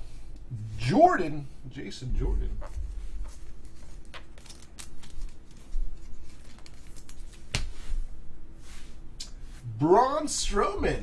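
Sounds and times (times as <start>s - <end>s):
trading cards flicking and swishing: 2.6s - 9.6s.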